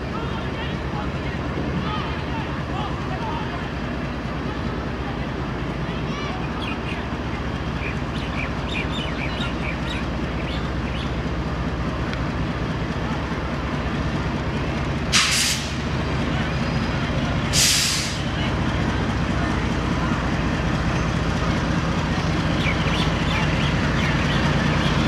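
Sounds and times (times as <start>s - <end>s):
locomotive engine droning: 0.0s - 25.0s
short sharp hisses: 15.1s - 15.8s, 17.5s - 18.2s.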